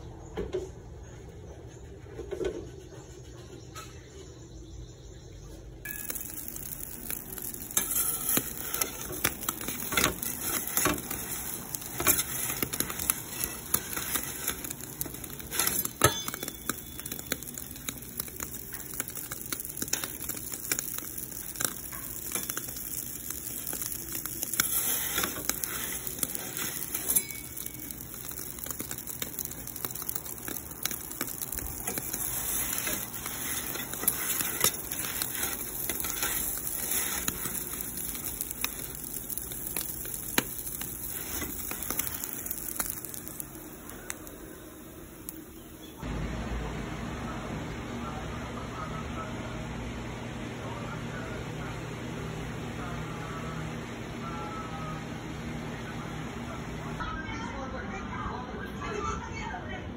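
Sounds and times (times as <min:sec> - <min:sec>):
pizza sizzling and popping: 0:05.8 - 0:46.2
gas burner hissing: 0:05.9 - 0:49.3.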